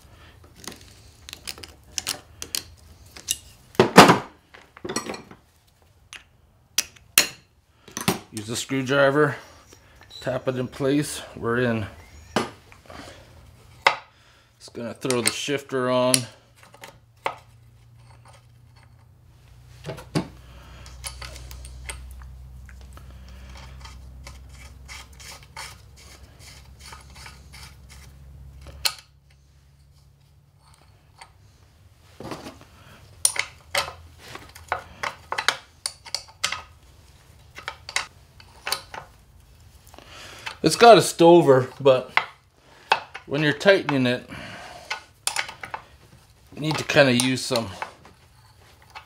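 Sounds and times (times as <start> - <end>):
metal tools clinking and scraping: 0.5 - 3.7, 4.6 - 5.4, 14.9 - 19.1, 20.7 - 22.2, 23.3 - 31.6, 33.2 - 39.1, 44.8 - 49.0.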